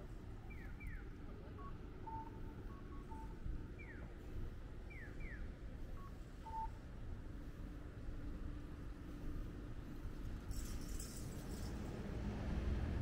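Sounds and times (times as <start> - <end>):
street noise rumble: 0.0 - 13.0
crossing signal electronic chirps: 0.4 - 4.1
short beeps: 1.6 - 4.1, 6.0 - 6.8.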